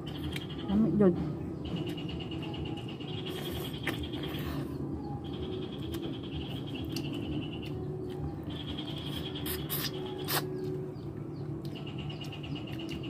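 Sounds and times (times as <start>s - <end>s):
rapid high-pitched chirping: 1.6s - 11.1s.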